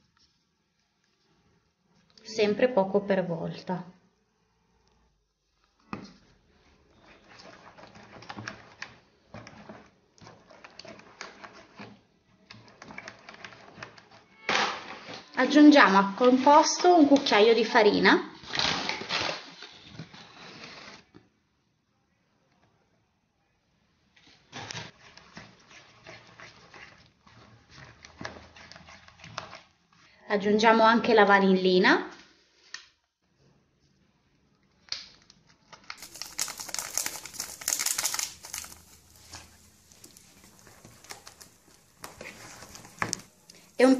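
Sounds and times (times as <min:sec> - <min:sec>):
spatula scraping a bowl: 0:06.9 - 0:14.2, 0:24.7 - 0:29.8.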